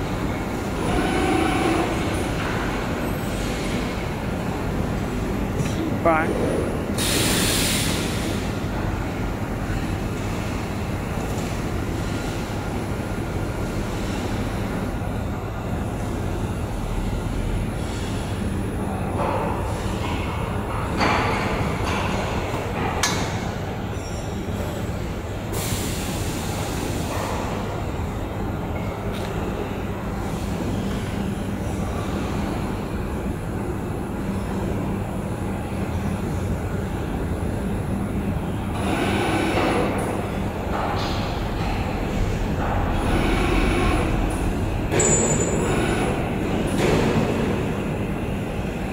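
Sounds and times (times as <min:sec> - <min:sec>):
laser cutting machine running: 0:00.2 - 0:02.3, 0:37.7 - 0:40.1, 0:42.8 - 0:46.6.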